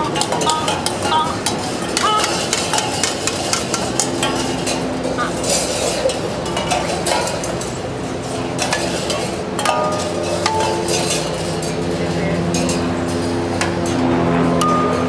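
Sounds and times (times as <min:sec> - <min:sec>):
cans and bottles rattling: 0:00.0 - 0:11.8.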